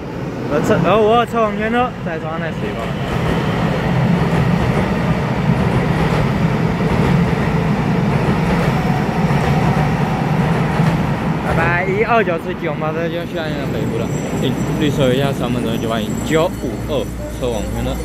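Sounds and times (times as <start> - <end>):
electric train rumbling: 0.0 - 18.0.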